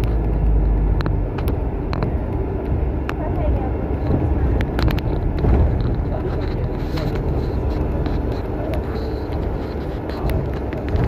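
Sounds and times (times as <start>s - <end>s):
bus engine and road rumble: 0.0s - 11.0s
small clicks and rattles: 3.9s - 11.0s.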